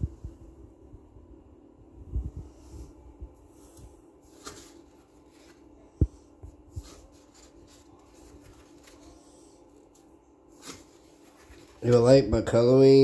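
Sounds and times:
paper pages rustling: 3.6 - 5.9, 6.5 - 12.2.

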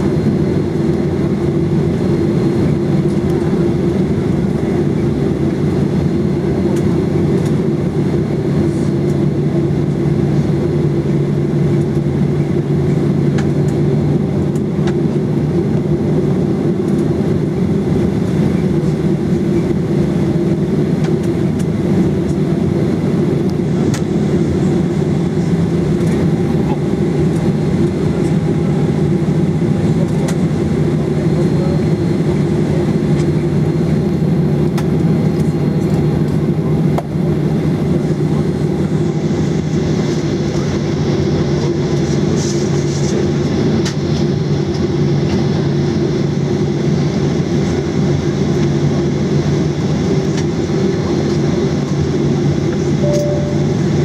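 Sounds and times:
aircraft cabin rumble: 0.0 - 54.0.

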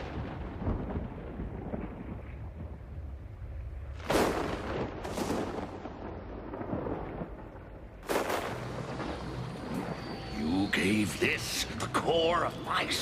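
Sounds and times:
thunder-like blasts: 0.0 - 10.2.

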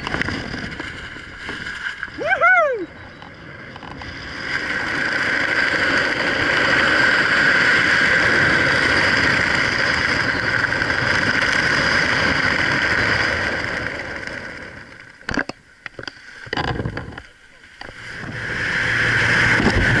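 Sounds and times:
airflow rushing over microphone: 16.8 - 20.0.

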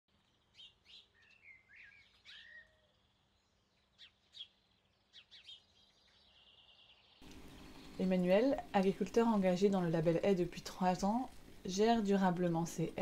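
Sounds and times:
faint bird chirps and calls: 0.1 - 9.0.

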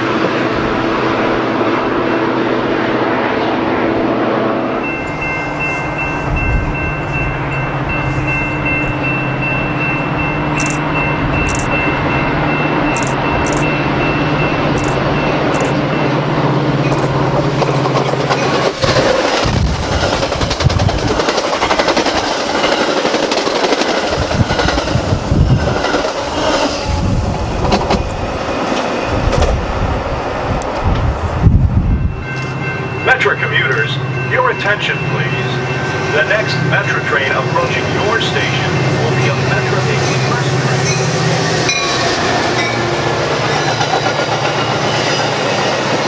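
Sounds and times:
train passing at speed: 0.0 - 46.0
wheel and rail noise rushing: 0.0 - 46.0.

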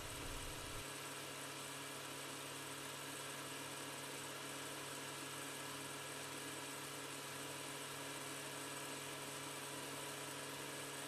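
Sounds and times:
low hum: 0.0 - 0.8.

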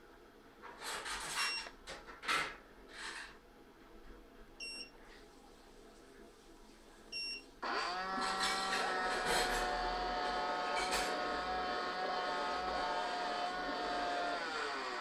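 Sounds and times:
vacuum motors and brushes whining: 7.6 - 15.0.

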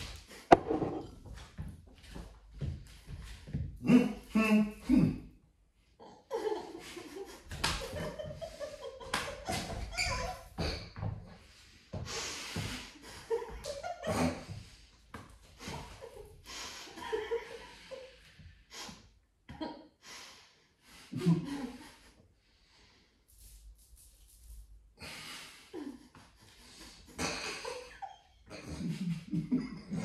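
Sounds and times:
tortilla slapping a face: 7.5 - 8.0
muffled laughter and snorting: 12.8 - 14.8, 21.1 - 22.2, 25.1 - 30.0.

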